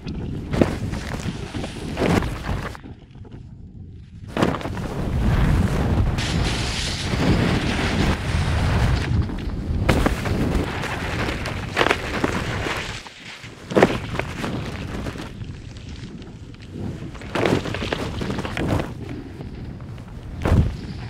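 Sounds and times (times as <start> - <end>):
wind buffeting microphone: 0.0 - 21.0
skis hissing over snow: 6.2 - 8.9.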